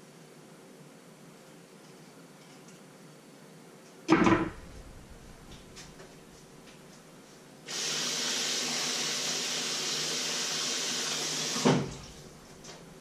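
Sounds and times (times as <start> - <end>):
kitchen tap running water: 7.7 - 12.6.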